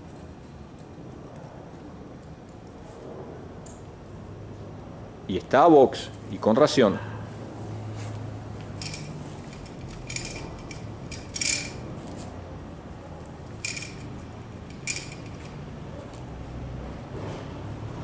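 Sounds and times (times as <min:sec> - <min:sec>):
steady low hum: 0:07.1 - 0:18.0
metal buckles clinking: 0:08.8 - 0:12.3, 0:13.3 - 0:16.2.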